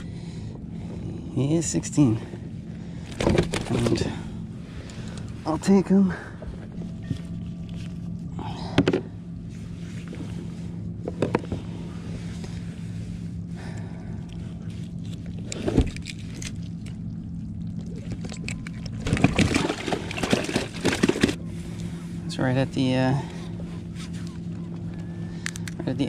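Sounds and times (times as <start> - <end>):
steady low hum: 0.0 - 26.0
gear clattering and rustling: 14.6 - 17.1, 18.2 - 21.4.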